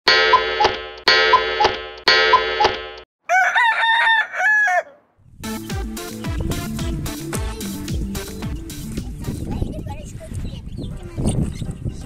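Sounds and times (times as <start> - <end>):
rooster crowing: 3.2 - 5.1
music: 5.4 - 10.0.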